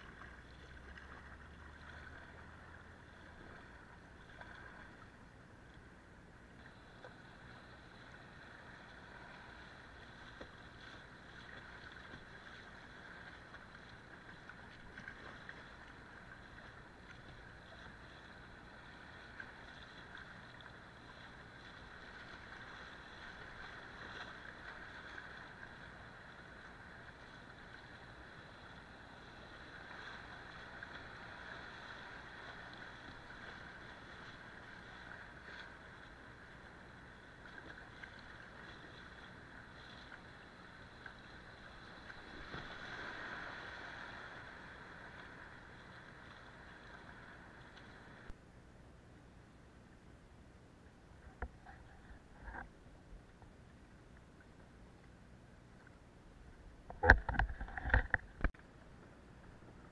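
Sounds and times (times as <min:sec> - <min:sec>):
paddle splashes: 0:00.0 - 0:48.4, 0:55.7 - 0:59.9.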